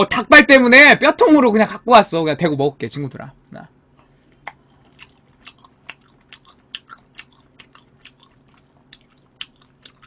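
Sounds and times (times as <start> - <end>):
person chewing: 4.2 - 10.0.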